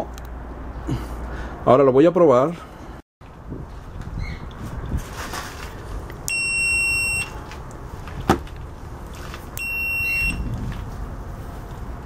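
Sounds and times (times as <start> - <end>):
multimeter beeping: 6.3 - 7.4, 9.6 - 10.5.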